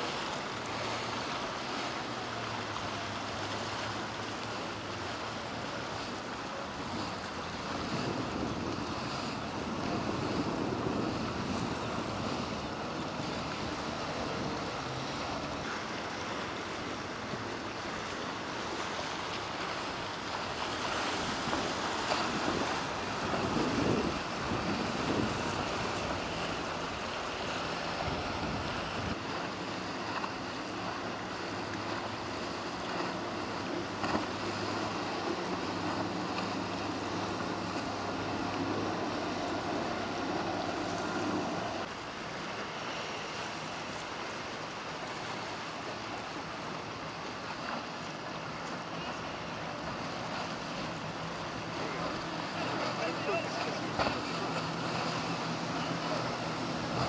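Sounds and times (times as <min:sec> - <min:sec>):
boat engines running: 0:00.0 - 0:57.0
wash of waves: 0:00.0 - 0:57.0
wind buffeting microphone: 0:06.8 - 0:15.7, 0:19.6 - 0:29.4.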